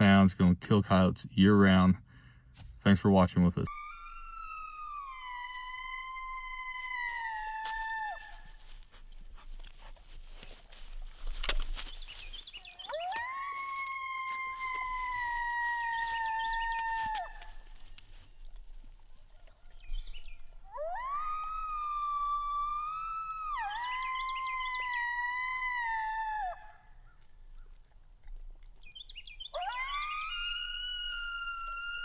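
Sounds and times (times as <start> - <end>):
coyote howls: 3.7 - 8.9, 12.6 - 17.8, 19.3 - 27.3, 29.4 - 32.0.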